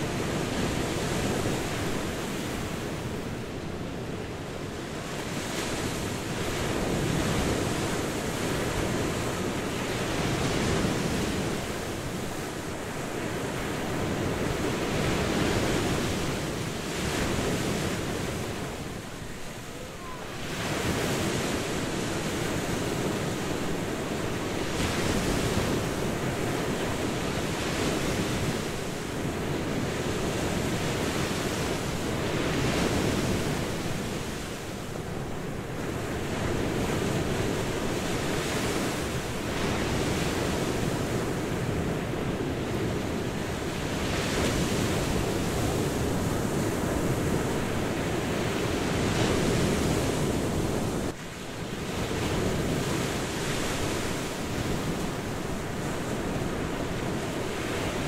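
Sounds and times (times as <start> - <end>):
waves breaking: 0.0 - 58.0.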